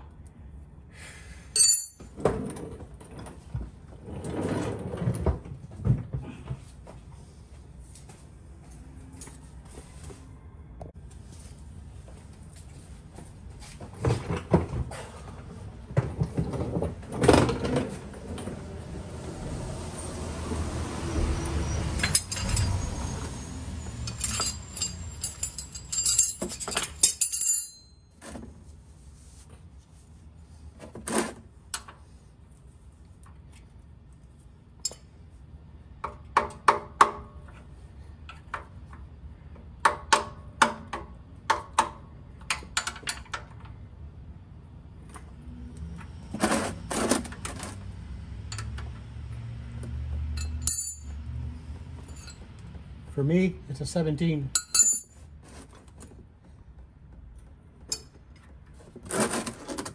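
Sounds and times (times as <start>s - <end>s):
metal wrench clinking and rattling: 1.6s - 2.1s, 22.0s - 22.9s, 23.9s - 28.2s, 50.4s - 51.1s, 54.5s - 55.2s.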